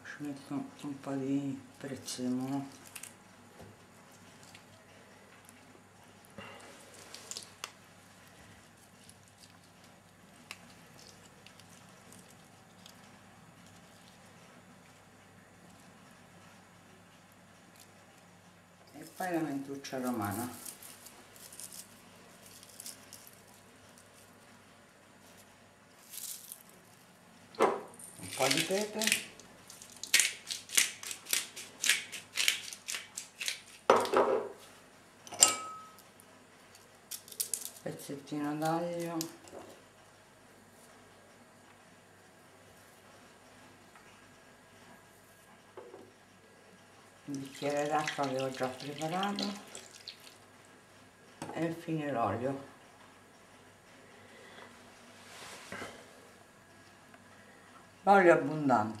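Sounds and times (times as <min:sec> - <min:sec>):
faint rustling of herbs: 0:18.9 - 0:27.2, 0:54.3 - 0:55.8
pepper grinder crunching: 0:20.1 - 0:24.3, 0:26.0 - 0:26.8, 0:28.0 - 0:34.1, 0:36.7 - 0:37.9.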